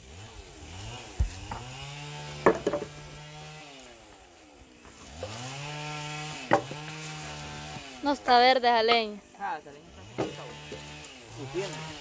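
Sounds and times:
chainsaw cutting wood: 0.0 - 12.0
sharp knocks: 2.4 - 3.0, 6.5 - 6.8.

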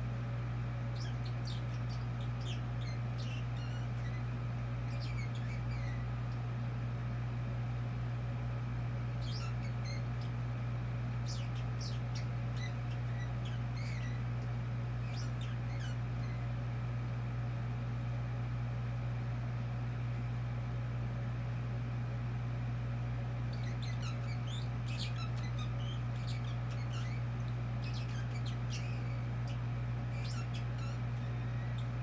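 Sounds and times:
low hum: 0.0 - 32.0
budgerigar chirping: 0.8 - 6.3, 9.1 - 10.4, 11.2 - 16.6, 23.5 - 32.0.

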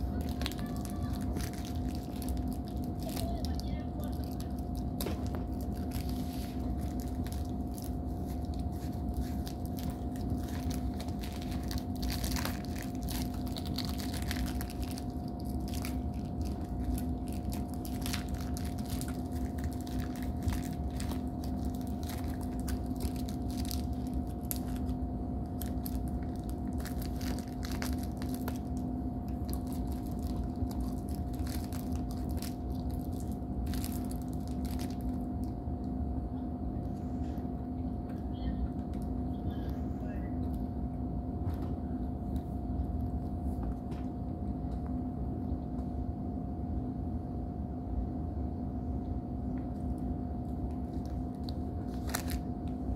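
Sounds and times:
plastic wrapper crinkling: 0.0 - 35.5, 50.9 - 52.8
steady low hum: 0.0 - 52.9.

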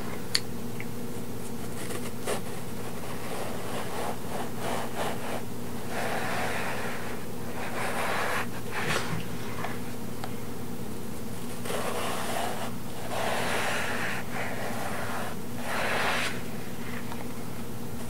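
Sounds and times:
low buzzing hum: 0.0 - 18.0
knife sawing soft scratchy rubbing: 1.8 - 8.6, 11.6 - 16.5.

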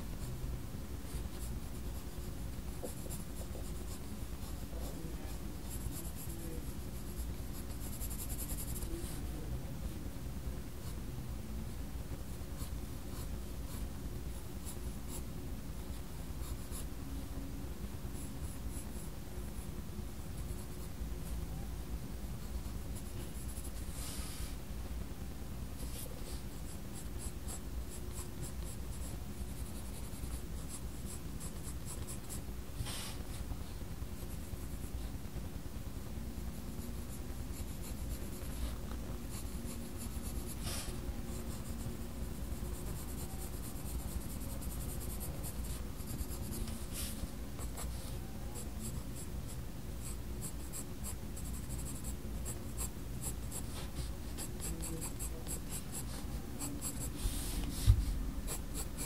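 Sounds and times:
pencil scratching on paper: 1.0 - 9.3, 25.8 - 33.3, 36.7 - 59.0.

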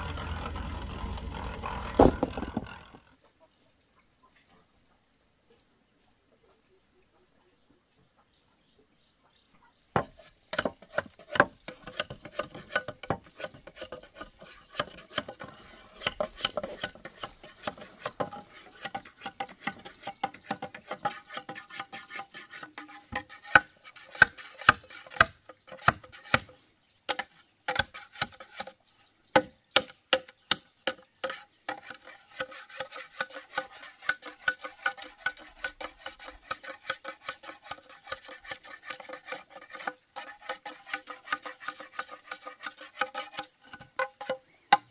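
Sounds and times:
scraping strokes by hand: 0.0 - 3.0, 10.0 - 28.8, 30.9 - 44.9.

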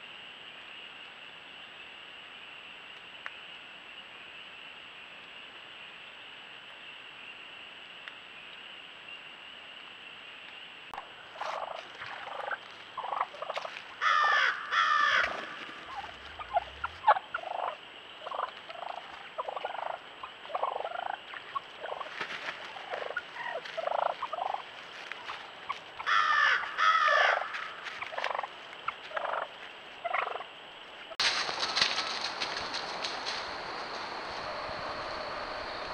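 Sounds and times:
turkeys gobbling: 11.0 - 30.5
turkey flock calls: 11.2 - 30.5.

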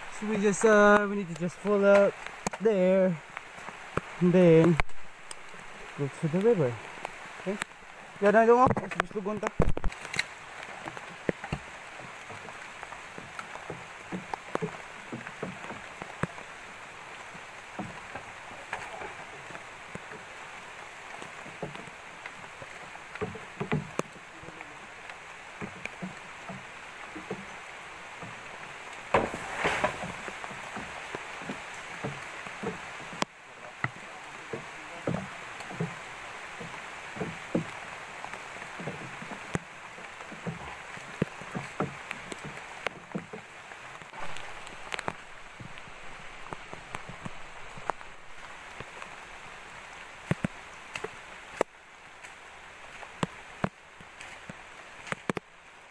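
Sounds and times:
rain on foliage: 0.0 - 55.9
rustling undergrowth: 0.0 - 55.9
bamboo pole knocking and scraping: 8.6 - 11.8, 23.1 - 24.1, 28.2 - 36.0.

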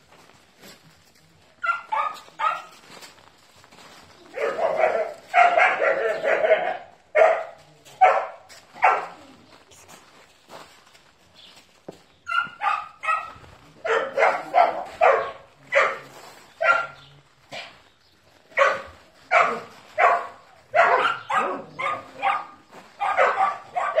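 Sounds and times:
dog barking: 1.6 - 2.8, 4.3 - 9.3, 12.3 - 17.8, 18.5 - 24.0.

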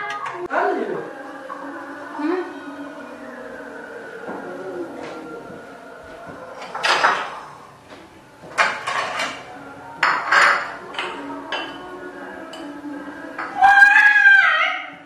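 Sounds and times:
dishes and utensils clattering: 0.0 - 0.5, 6.3 - 14.0.

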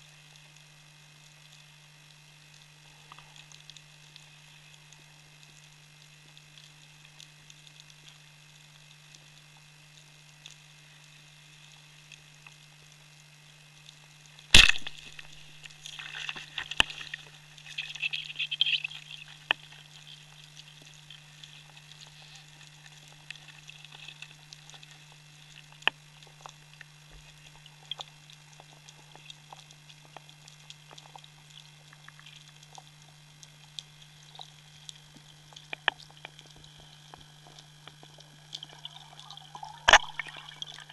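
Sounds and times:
steady low hum: 0.0 - 40.9
speargun crack underwater: 14.5 - 24.9, 37.8 - 40.9.

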